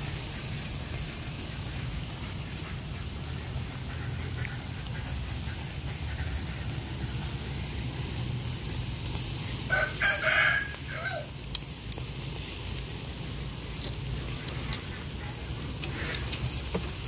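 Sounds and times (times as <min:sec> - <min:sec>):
meat sizzling on grill: 0:00.0 - 0:03.2, 0:06.7 - 0:17.0
rooster crowing: 0:09.7 - 0:11.4.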